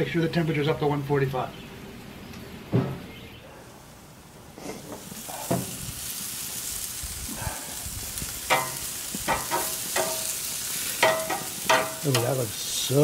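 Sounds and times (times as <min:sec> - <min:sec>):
meat sizzling on a grill: 0:03.8 - 0:13.0
metal knocking on grill: 0:08.5 - 0:10.4, 0:11.0 - 0:12.4.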